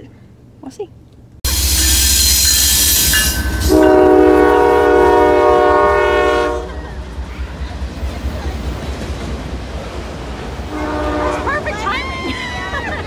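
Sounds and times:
freight train rumbling past: 1.4s - 13.0s
train horn: 1.5s - 6.8s, 10.6s - 11.8s.

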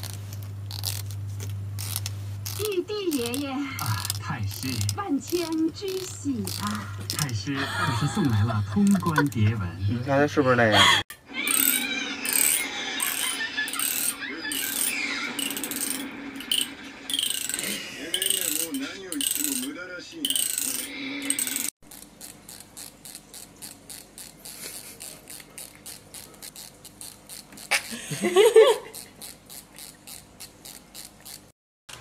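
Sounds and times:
comb teeth scraping and ticking: 0.0s - 7.4s, 8.8s - 9.6s, 11.5s - 27.9s, 28.8s - 31.5s
comb ticking evenly: 1.8s - 7.5s.

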